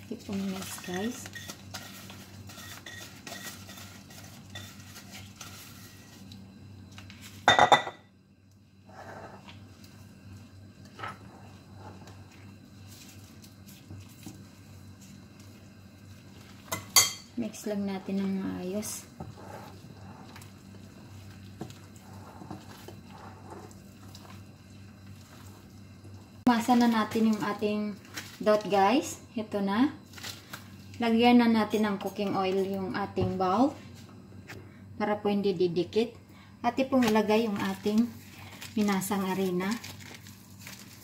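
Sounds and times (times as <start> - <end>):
steady low hum: 0.0 - 41.0
utensil scraping ceramic bowl: 0.6 - 6.2, 8.9 - 9.5, 18.8 - 20.6, 21.6 - 24.3
hand squishing dough in a bowl: 9.0 - 16.8.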